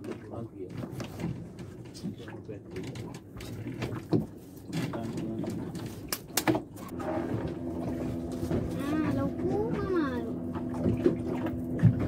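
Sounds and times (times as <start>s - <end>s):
low steady hum: 6.8s - 12.0s.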